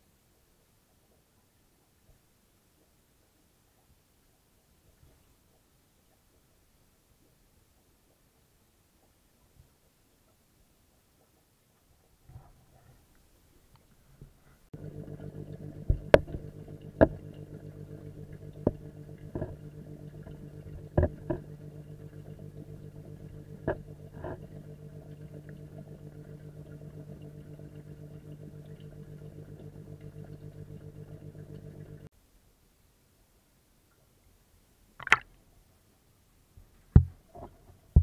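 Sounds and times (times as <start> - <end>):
fast-pulsing pump hum: 14.8 - 32.1
sharp clicks and knocks: 15.5 - 25.6.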